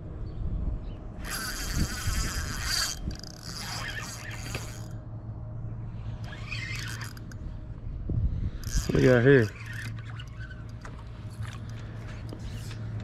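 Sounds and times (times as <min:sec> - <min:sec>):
fishing reel gears whirring: 0:01.2 - 0:05.1, 0:06.0 - 0:07.8, 0:08.4 - 0:12.8.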